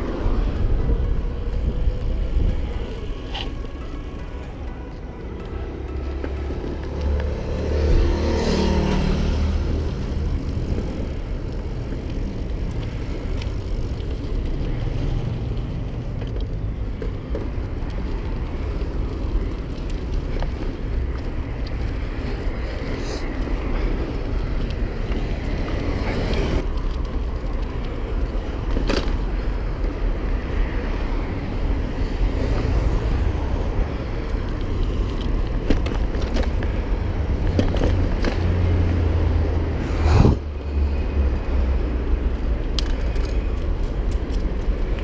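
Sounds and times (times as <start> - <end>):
cars passing: 0.0 - 45.0
wind and road noise: 0.0 - 45.0.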